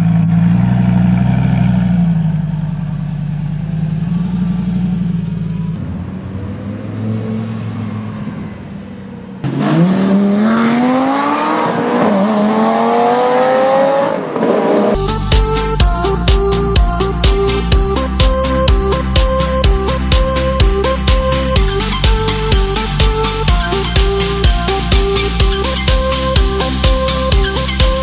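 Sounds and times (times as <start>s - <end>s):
sports car engine idling: 0.0s - 9.6s, 15.0s - 28.0s
car engine accelerating hard: 0.0s - 16.1s.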